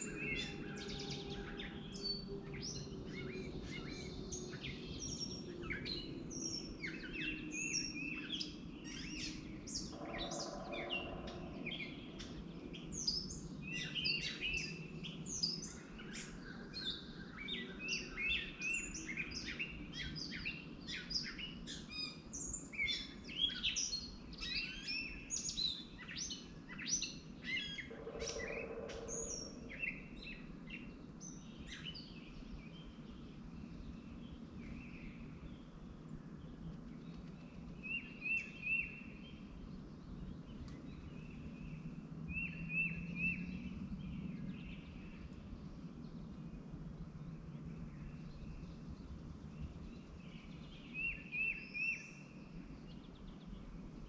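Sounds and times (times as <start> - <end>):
steady low hum: 27.2 - 31.6.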